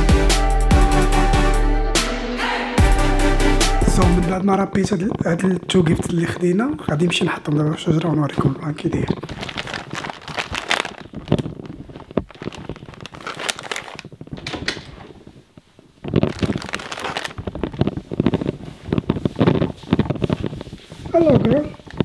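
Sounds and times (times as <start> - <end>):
wrapping paper crinkling: 4.8 - 22.0.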